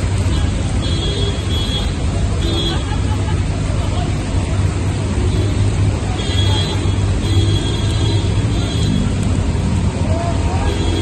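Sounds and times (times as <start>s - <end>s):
cars driving through floodwater: 0.0s - 11.0s
heavy rain pouring: 0.0s - 11.0s.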